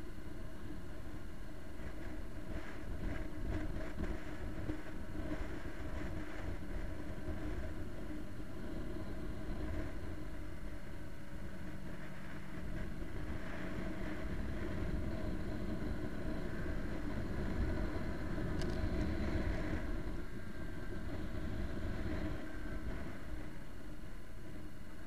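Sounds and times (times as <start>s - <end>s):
wind noise on microphone: 0.0s - 25.0s.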